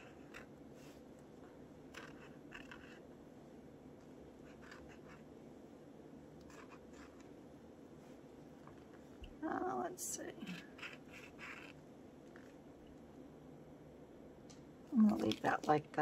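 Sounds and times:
marker pen scratching on paper: 0.0 - 1.1, 1.9 - 3.1, 4.4 - 5.3, 6.4 - 7.4, 10.6 - 12.6.

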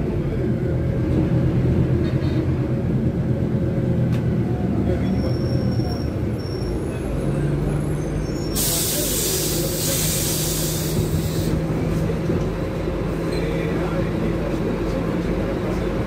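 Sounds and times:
bus engine running: 0.0 - 16.0
compressed air hiss: 8.6 - 11.6.

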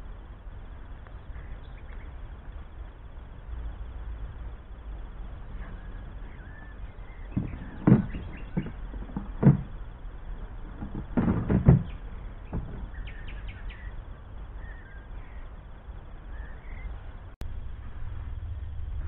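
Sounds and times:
steady low rumble: 0.0 - 19.0
faint bird chirps: 1.0 - 2.4, 5.3 - 9.4, 11.8 - 17.2
knocks and thumps of garden gear: 5.5 - 13.4.

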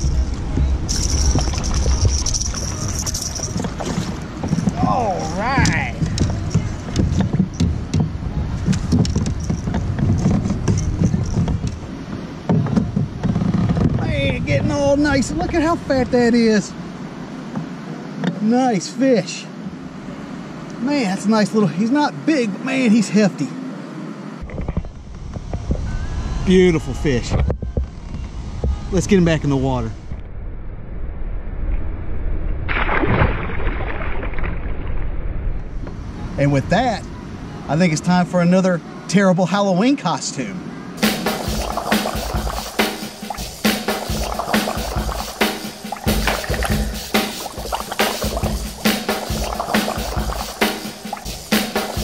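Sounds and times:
steady low rumble: 0.0 - 12.0, 41.0 - 52.0
wind rumbling on microphone: 0.0 - 16.2, 24.4 - 32.8
fish splashing at surface: 41.0 - 52.0.

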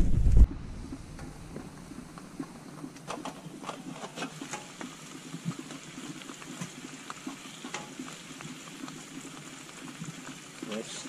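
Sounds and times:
food sizzling in a frying pan: 2.6 - 11.0.

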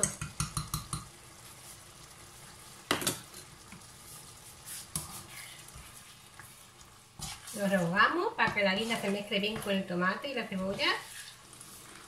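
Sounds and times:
metal spoon tapping: 0.0 - 1.1
sauce sizzling in frying pan: 0.0 - 12.0.

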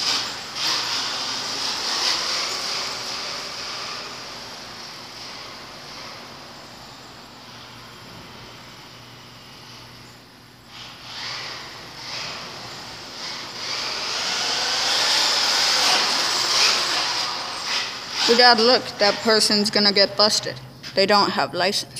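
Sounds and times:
electric rc car running: 0.0 - 10.1, 10.7 - 20.5.

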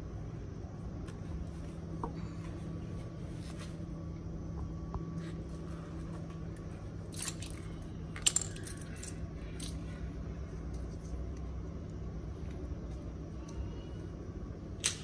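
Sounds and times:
steady low hum: 0.0 - 15.0
metal parts clicking and clinking: 7.1 - 9.9.

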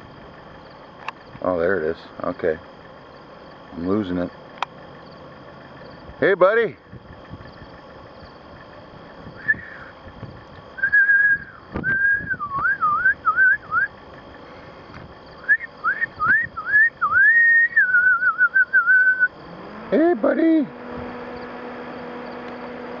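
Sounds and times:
person whistling: 9.4 - 9.9, 10.8 - 13.9, 15.4 - 19.3.

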